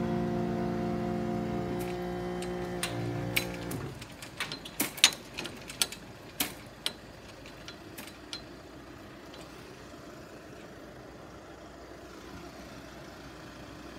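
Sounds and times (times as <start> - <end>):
vehicle engines idling: 0.0 - 13.9
crossing barrier clicking: 1.6 - 9.8.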